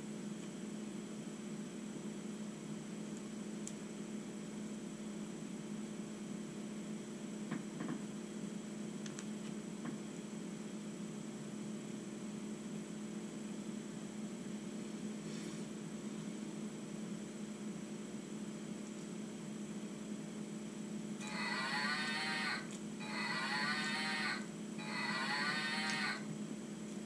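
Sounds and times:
low electrical hum: 0:00.0 - 0:27.0
faint high whine: 0:20.4 - 0:27.0.

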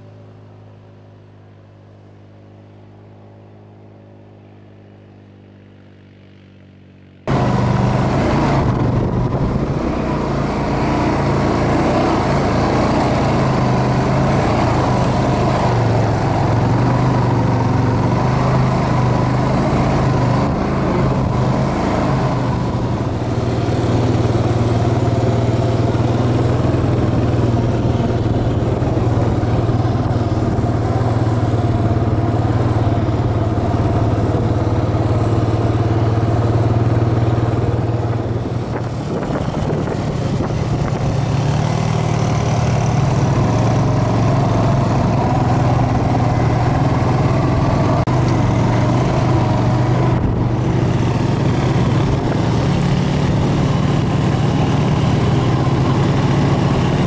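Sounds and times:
atv engines cruising: 0:00.0 - 0:57.0.

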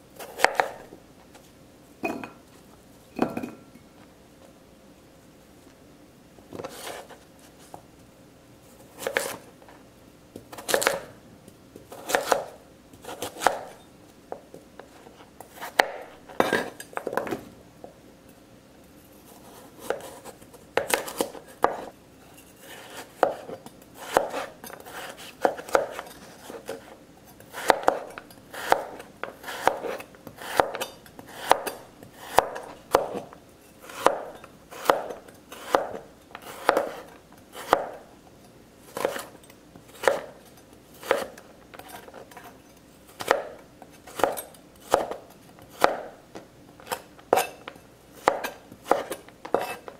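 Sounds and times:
knife chopping on cutting board: 0:00.2 - 0:00.9, 0:09.0 - 0:09.4, 0:10.5 - 0:11.1, 0:11.9 - 0:13.8, 0:15.5 - 0:17.4, 0:19.8 - 0:21.9, 0:22.6 - 0:26.9, 0:27.5 - 0:38.0, 0:38.9 - 0:40.4, 0:41.0 - 0:42.5, 0:43.1 - 0:46.2, 0:46.8 - 0:49.9.

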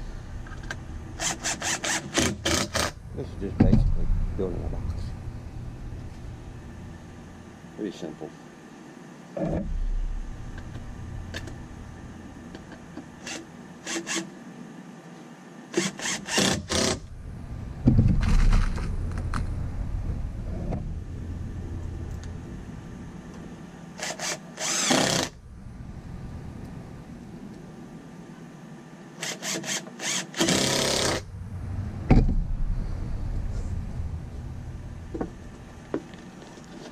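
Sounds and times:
cordless drill driving screws: 0:01.2 - 0:03.0, 0:13.2 - 0:14.3, 0:15.8 - 0:17.0, 0:24.0 - 0:25.4, 0:29.2 - 0:31.2.

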